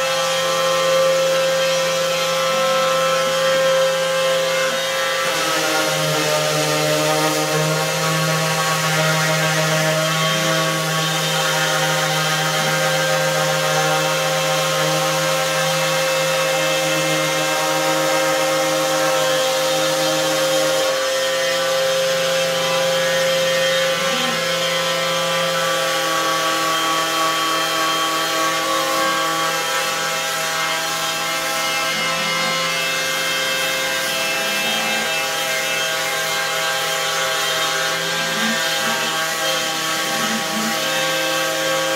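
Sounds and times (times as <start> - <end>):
orbital sander on wood: 0.0 - 41.9.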